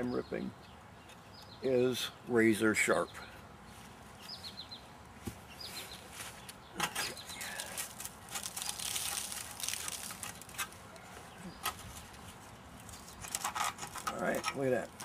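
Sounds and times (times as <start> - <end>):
birds chirping: 0.0 - 15.0
sheet metal ripping: 7.7 - 10.8.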